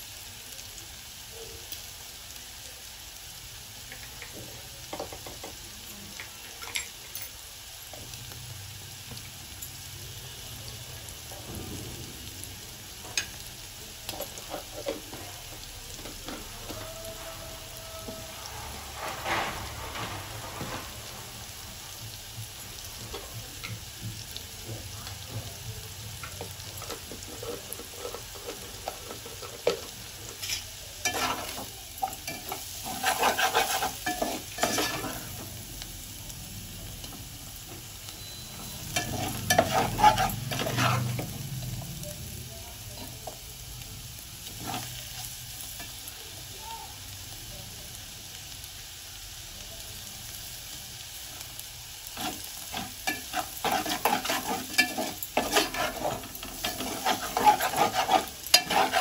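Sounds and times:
potatoes sizzling in oil: 0:00.0 - 0:59.0
ladle stirring and scraping pot: 0:18.0 - 0:21.3, 0:26.7 - 0:35.5, 0:38.6 - 0:41.4, 0:44.4 - 0:46.0, 0:52.1 - 0:59.0.

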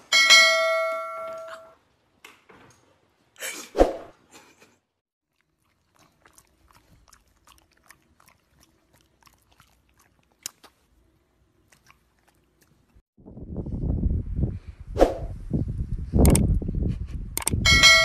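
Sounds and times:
dog chewing: 0:05.3 - 0:13.0.

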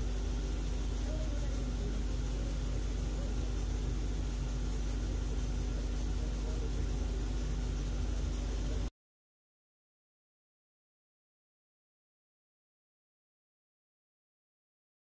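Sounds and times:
even hiss: 0:00.0 - 0:08.9
steady mid-pitched tone: 0:00.0 - 0:08.9
woodworking machinery hum: 0:00.0 - 0:08.9.

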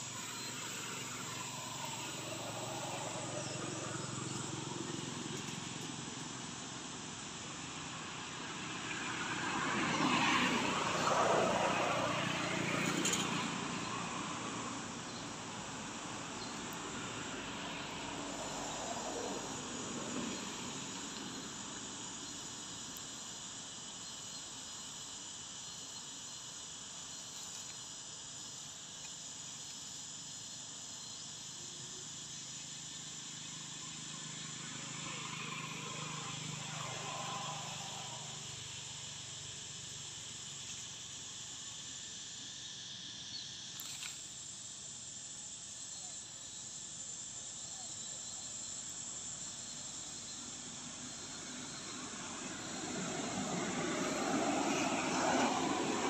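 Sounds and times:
insects chirring: 0:00.0 - 0:56.0
vehicle passing: 0:00.2 - 0:05.8, 0:08.7 - 0:14.8, 0:34.2 - 0:39.0, 0:50.8 - 0:56.0.

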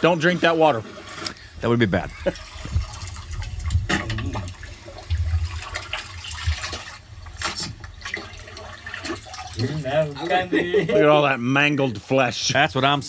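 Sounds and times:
water sloshing in metal pot: 0:00.4 - 0:10.4.

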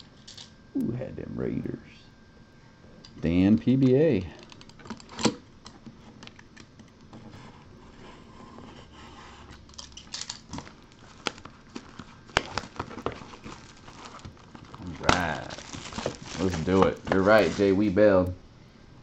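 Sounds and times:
shrink wrap crinkling: 0:09.7 - 0:18.3.

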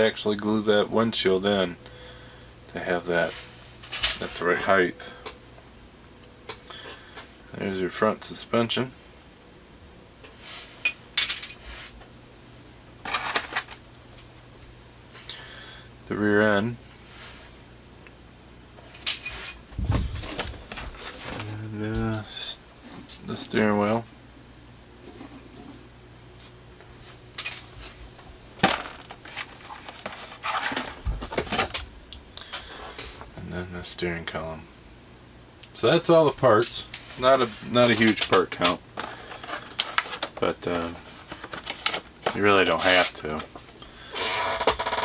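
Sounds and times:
plastic parts clattering: 0:11.2 - 0:11.6, 0:13.0 - 0:13.8, 0:19.9 - 0:21.6, 0:28.6 - 0:32.2, 0:41.3 - 0:43.0.

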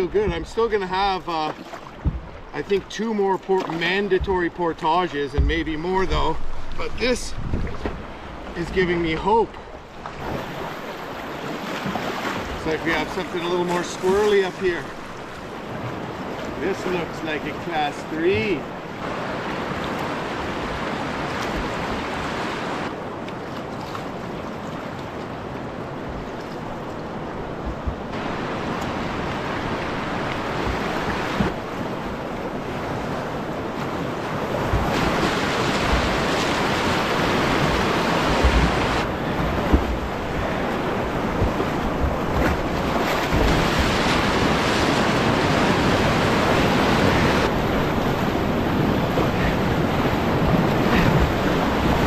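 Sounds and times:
rushing whitewater: 0:00.0 - 0:52.0
wind buffeting microphone: 0:05.3 - 0:08.5, 0:26.0 - 0:52.0.

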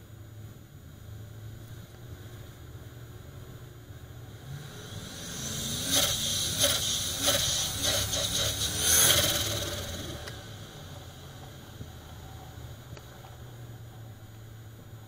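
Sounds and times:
engine pulling under load: 0:04.4 - 0:11.6
turbo whistle and hiss: 0:04.6 - 0:10.3
turbo flutter chuffs: 0:04.8 - 0:10.4.

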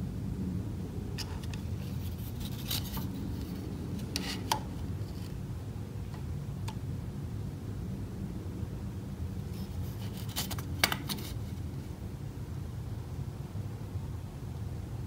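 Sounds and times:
steady low hum: 0:00.0 - 0:15.0
calipers scraping and clicking: 0:01.2 - 0:05.4.

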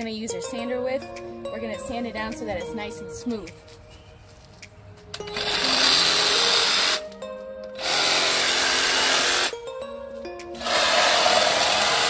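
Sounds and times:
reciprocating saw cutting wood: 0:05.3 - 0:07.0, 0:07.8 - 0:09.5, 0:10.6 - 0:12.0.

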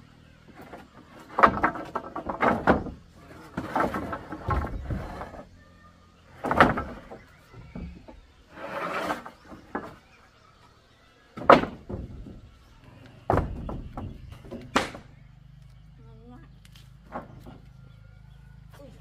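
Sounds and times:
rough scraping: 0:00.4 - 0:10.5
wooden knocks and thuds: 0:00.5 - 0:05.5, 0:06.2 - 0:08.4, 0:09.0 - 0:10.2, 0:11.3 - 0:15.1, 0:17.0 - 0:17.8.

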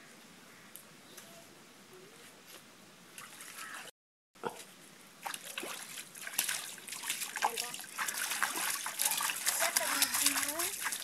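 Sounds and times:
water splashing and sloshing: 0:03.1 - 0:04.6, 0:05.2 - 0:11.0.

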